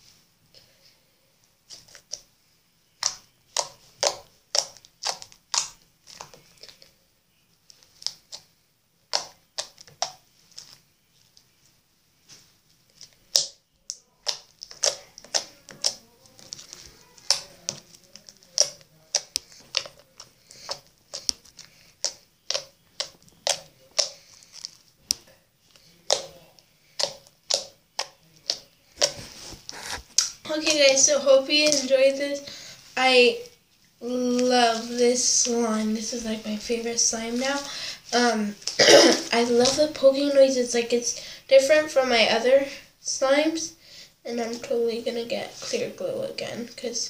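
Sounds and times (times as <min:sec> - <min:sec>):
sticky slime pops and clicks: 0:03.0 - 0:06.3, 0:09.1 - 0:10.2, 0:13.3 - 0:16.0, 0:27.0 - 0:29.2.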